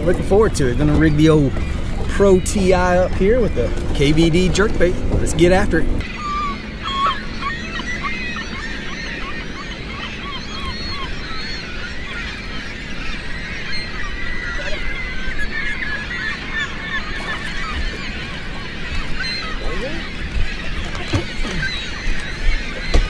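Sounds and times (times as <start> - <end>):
low steady rumble: 0.0 - 9.2
flock of birds calling: 0.0 - 23.0.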